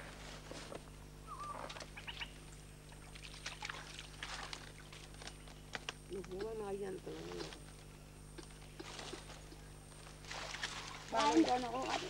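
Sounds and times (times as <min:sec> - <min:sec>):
splashy handling of pulp: 0:03.0 - 0:05.6, 0:10.1 - 0:12.0.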